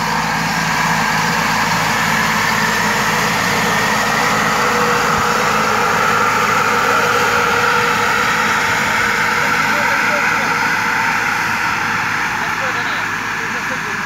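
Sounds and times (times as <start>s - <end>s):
diesel tractor engine running: 0.0s - 14.0s
sprayer fan whine: 0.0s - 14.0s.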